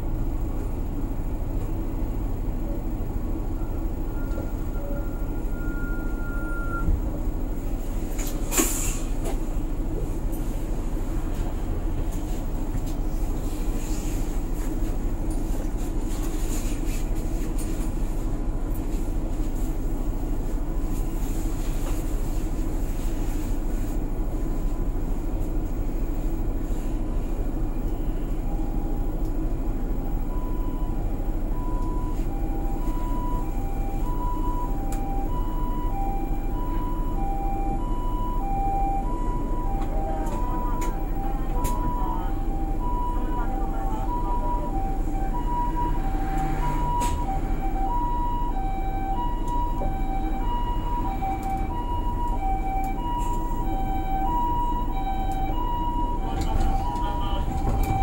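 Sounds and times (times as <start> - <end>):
bus engine and road noise: 0.0 - 58.0
two-tone ambulance siren: 3.4 - 7.0, 30.0 - 58.0.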